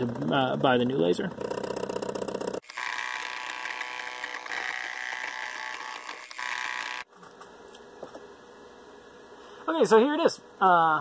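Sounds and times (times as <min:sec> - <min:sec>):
laser engraver motors whining: 0:02.6 - 0:07.1.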